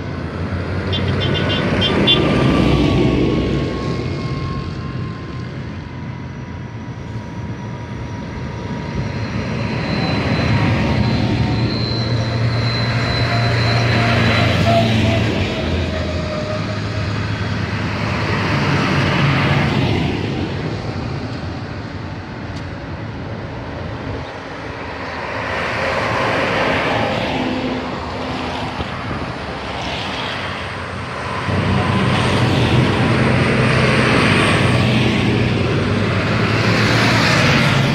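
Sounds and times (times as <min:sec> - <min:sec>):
diesel tractor engines driving past: 0:00.0 - 0:37.9.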